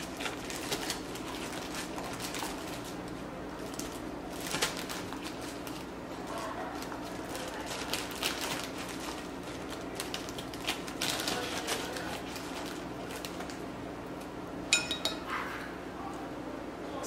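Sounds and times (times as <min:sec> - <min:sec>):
tap on glass bowl with ring: 0:14.7 - 0:15.2.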